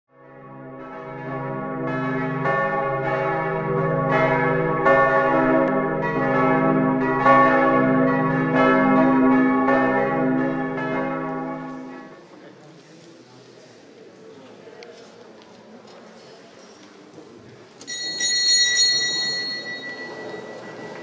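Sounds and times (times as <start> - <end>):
church bells pealing: 0.2 - 12.2, 17.9 - 21.0.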